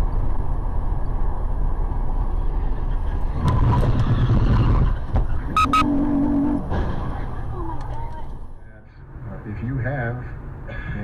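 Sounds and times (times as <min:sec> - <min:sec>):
car road and engine rumble: 0:00.0 - 0:11.0
high beeps: 0:05.5 - 0:05.9.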